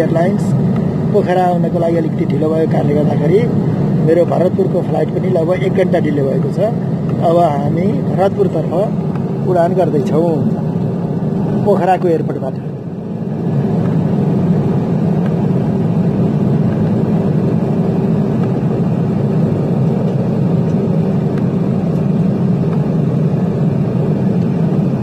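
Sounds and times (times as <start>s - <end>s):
faint constant tone: 0.0s - 25.0s
turboprop engines droning: 0.0s - 25.0s.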